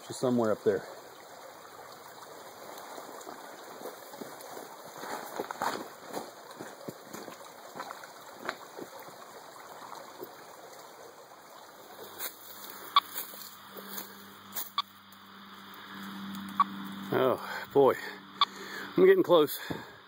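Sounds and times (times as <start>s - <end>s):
creek trickling over stones: 0.0s - 20.0s.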